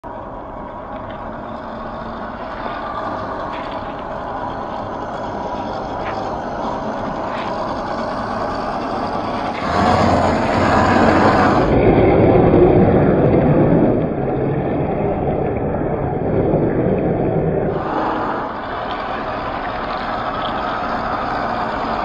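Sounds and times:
tyres churning through mud: 0.0s - 14.4s, 17.7s - 22.0s.

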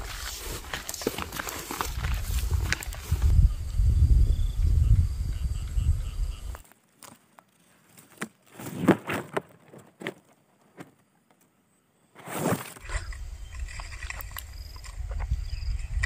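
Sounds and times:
leaves and twigs brushing phone: 0.0s - 3.4s
low wind rumble on microphone: 1.8s - 6.6s, 13.0s - 16.0s.

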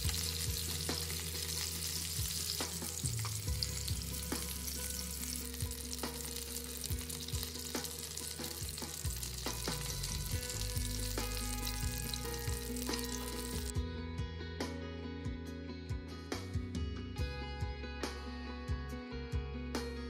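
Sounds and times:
chicken sizzling in oil: 0.0s - 13.7s.

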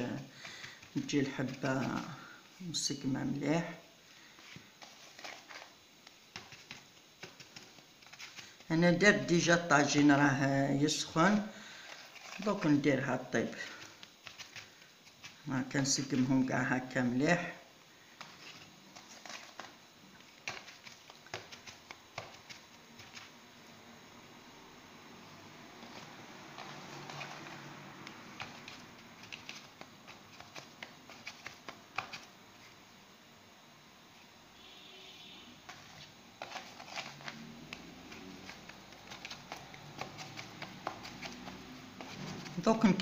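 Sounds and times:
hands patting dough on tray: 0.0s - 2.3s, 4.4s - 9.0s, 11.0s - 17.0s, 18.2s - 23.4s, 25.5s - 32.4s, 35.7s - 43.0s.

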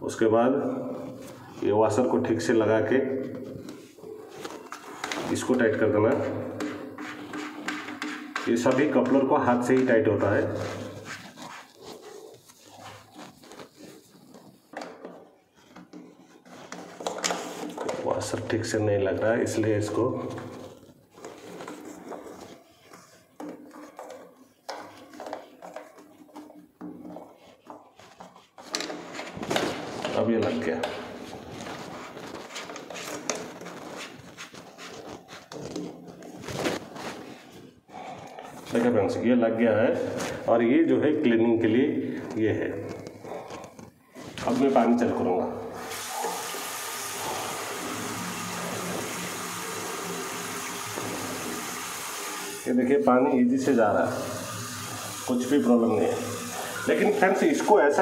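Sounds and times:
plastic knocking and scraping: 3.2s - 18.4s, 19.8s - 38.9s
tap running into wash basin: 45.8s - 52.7s, 53.6s - 57.7s.

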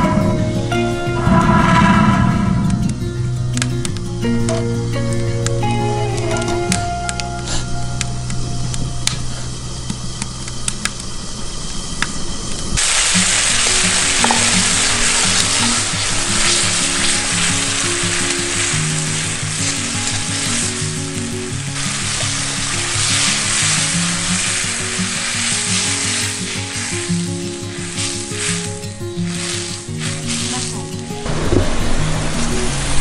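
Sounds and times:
background music: 0.0s - 10.2s, 12.8s - 33.0s
food sizzling in hot oil: 12.8s - 31.2s.

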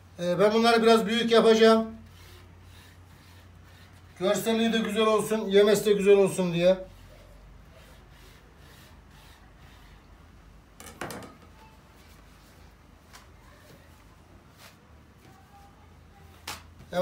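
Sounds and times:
knife scraping pastry sheets: 2.0s - 10.1s.

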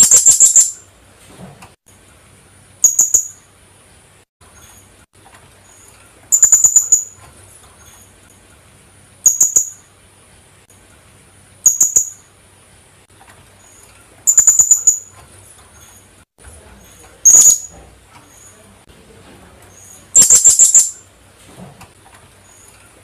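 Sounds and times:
parrot calling shrilly: 0.0s - 0.8s, 6.3s - 7.2s, 14.3s - 15.1s, 17.2s - 17.7s, 20.1s - 21.0s.

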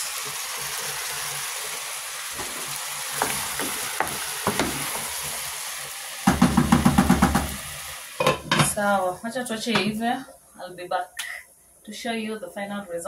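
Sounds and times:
stew sizzling in a pot: 0.0s - 10.2s.

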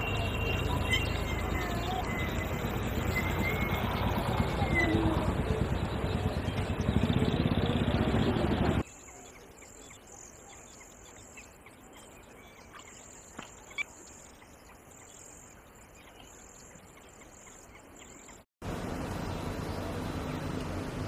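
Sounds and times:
faint high chirps: 0.0s - 7.0s
loud rushing outdoor noise: 0.0s - 8.8s.

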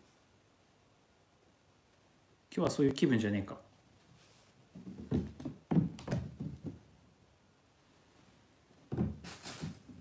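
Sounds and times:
kitten paws thumping on wooden floor: 4.7s - 7.0s, 8.9s - 10.0s.

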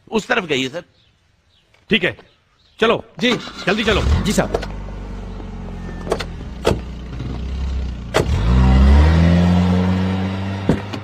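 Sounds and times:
car engine idling and revving: 3.4s - 11.0s.

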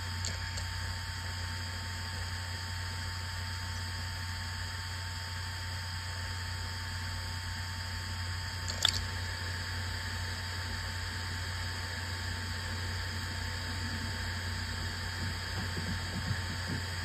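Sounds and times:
hard drive spinning hum: 0.0s - 17.0s
hard drive click: 14.8s - 17.0s.

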